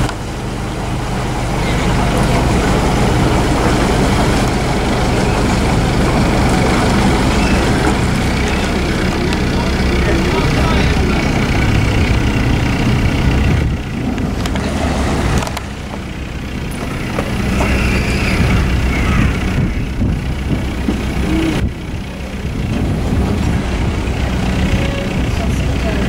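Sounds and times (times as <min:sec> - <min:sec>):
boat diesel engine running: 0:00.0 - 0:26.0.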